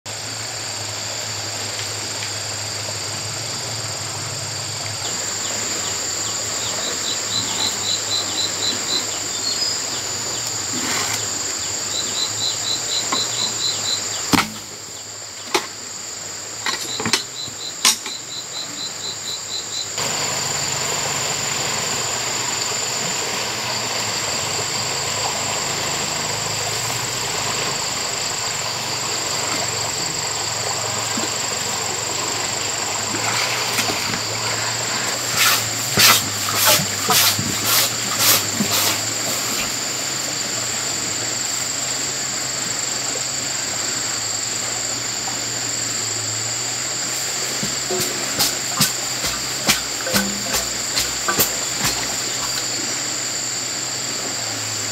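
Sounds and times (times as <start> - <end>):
insects buzzing: 0.1 - 54.9
river water rushing: 0.2 - 15.3, 20.0 - 54.9
sharp knocks: 14.3 - 14.7, 47.6 - 52.6
quick chirps: 47.6 - 52.6.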